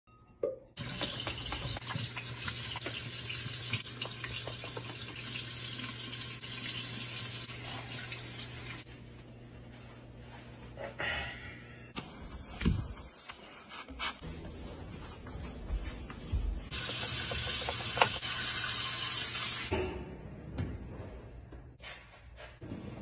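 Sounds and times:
tap water running into sink: 0.8s - 7.5s, 16.7s - 19.7s.

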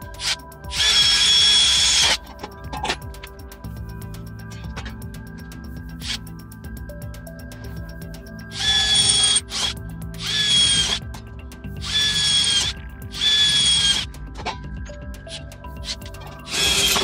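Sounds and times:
cordless drill boring steel: 0.0s - 2.4s, 8.5s - 11.1s, 11.8s - 14.1s, 15.8s - 17.0s
background music: 0.0s - 17.0s.

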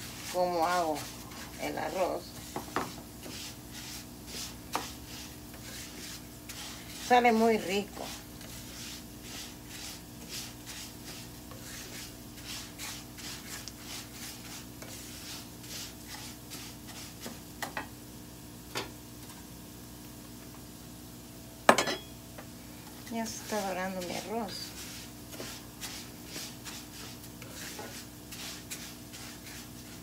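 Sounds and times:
spatula scraping a pan: 0.0s - 17.5s, 23.2s - 30.0s
rice toasting in oil: 23.2s - 30.0s.

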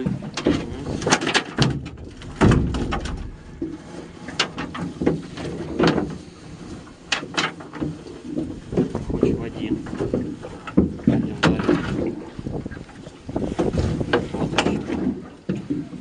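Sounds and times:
fishing net knocking on metal boat: 0.0s - 6.1s
heavy thump: 1.6s - 4.1s.

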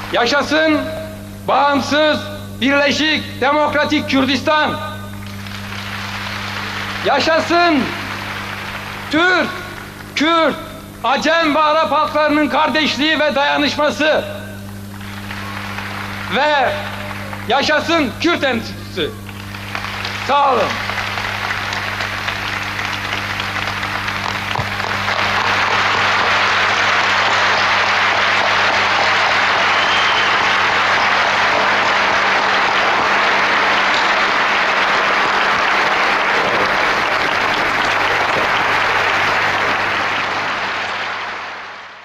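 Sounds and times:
low electrical hum: 0.0s - 42.0s
audience applauding: 5.1s - 10.3s, 14.6s - 42.0s.

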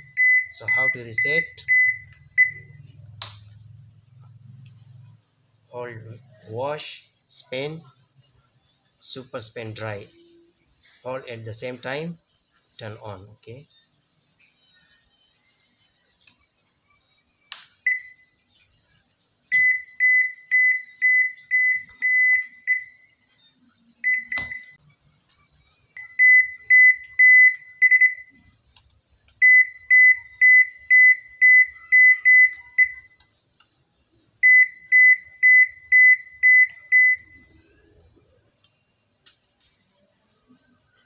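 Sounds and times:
washing machine panel beeping: 0.0s - 2.8s, 17.8s - 18.2s, 19.5s - 23.0s, 24.0s - 24.8s, 26.0s - 28.4s, 29.4s - 33.2s, 34.4s - 37.5s.

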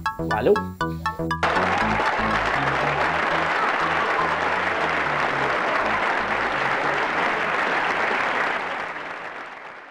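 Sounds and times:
background music bass notes: 0.0s - 7.3s
crowd applauding: 1.4s - 9.9s.

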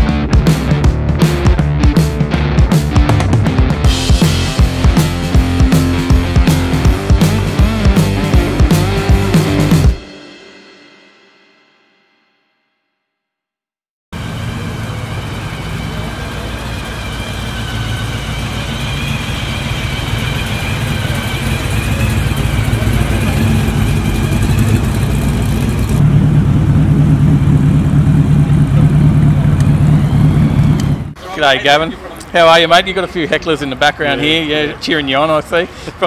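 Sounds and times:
car engine running: 14.2s - 31.2s.

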